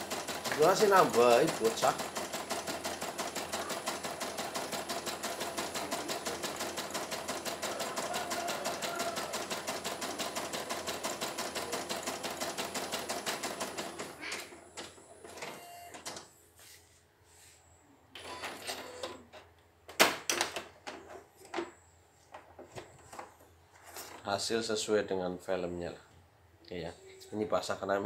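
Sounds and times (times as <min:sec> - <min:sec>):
embroidery machine needle clatter: 0:00.0 - 0:13.9.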